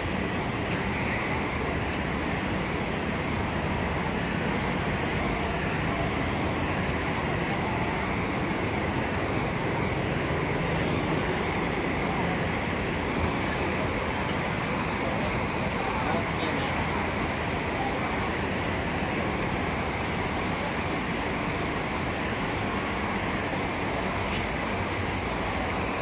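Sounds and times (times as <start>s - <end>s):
busy market hall din: 0.0s - 26.0s.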